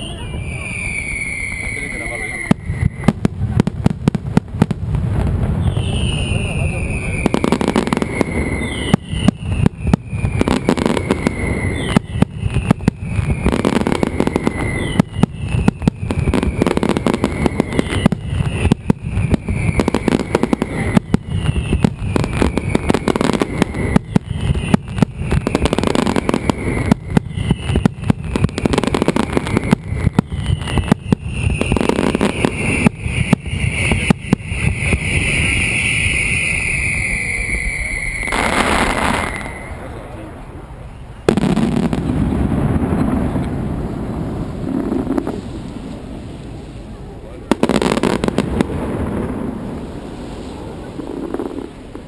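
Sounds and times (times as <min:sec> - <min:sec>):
falling whistle: 0:00.0 - 0:03.2, 0:05.6 - 0:40.1
firecrackers exploding: 0:00.0 - 0:52.0.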